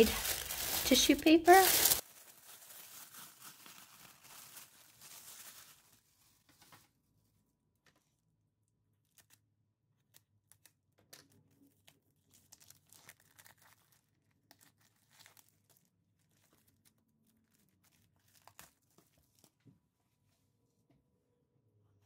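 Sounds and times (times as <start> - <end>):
cellophane crinkling and tearing: 0.0 - 6.4, 9.0 - 9.4, 11.7 - 19.6.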